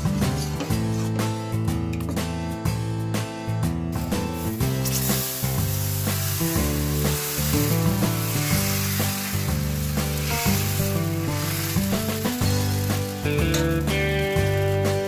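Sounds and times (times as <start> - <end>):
guitar music: 0.0 - 15.0
batter sizzling on a hot pan: 4.1 - 15.0.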